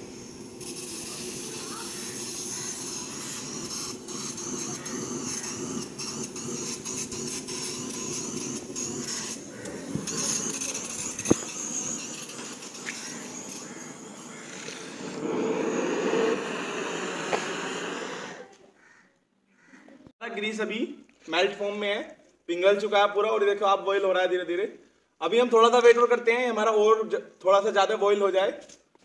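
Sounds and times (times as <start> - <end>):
grease hissing and crackling: 0.0 - 18.5
rush of noise: 12.8 - 18.4.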